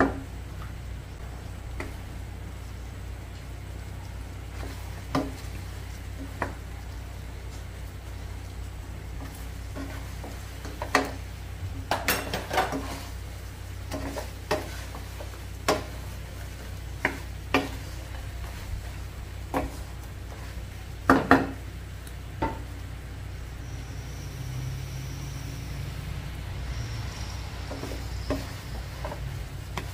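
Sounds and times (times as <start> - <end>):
steady low hum: 0.0 - 29.9
spatula knocking on frying pan: 15.7 - 16.0, 17.0 - 17.9, 21.0 - 21.6.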